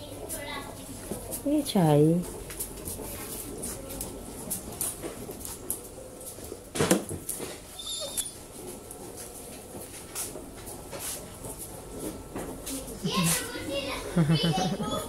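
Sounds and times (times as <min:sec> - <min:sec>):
thin high dog whine: 0:07.7 - 0:08.6
dog whimpering: 0:07.8 - 0:08.4.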